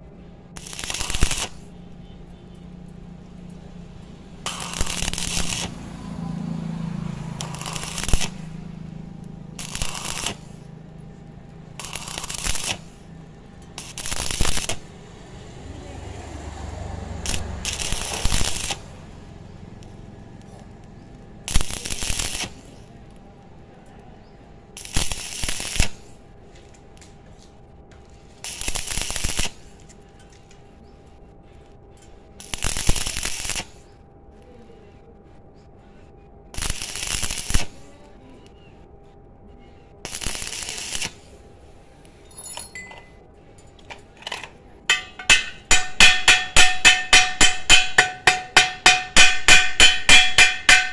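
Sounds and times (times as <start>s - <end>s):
welding arc crackling and hissing: 0.6s - 1.9s, 4.3s - 15.0s, 17.2s - 23.2s, 24.8s - 26.3s, 28.0s - 29.9s, 32.4s - 33.9s, 36.5s - 37.9s, 40.0s - 41.4s, 44.9s - 50.9s
chipping hammer knocking slag: 44.9s - 50.9s.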